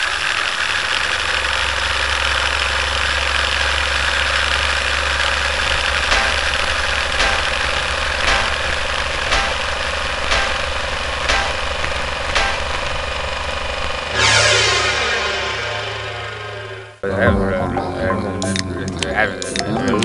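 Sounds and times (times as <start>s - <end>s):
film projector running: 0.0s - 14.2s
projector clicks: 5.8s - 13.0s.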